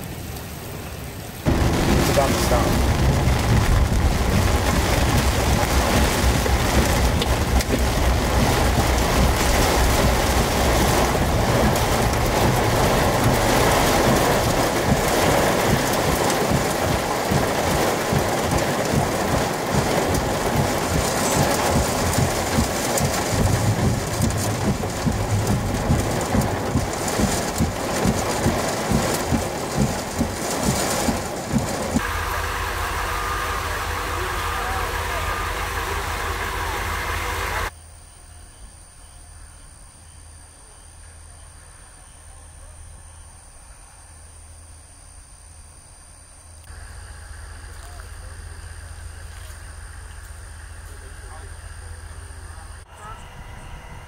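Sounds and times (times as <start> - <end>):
heavy rain pounding on vehicle: 0.0 - 37.7
low rumble of thunder: 1.5 - 33.1.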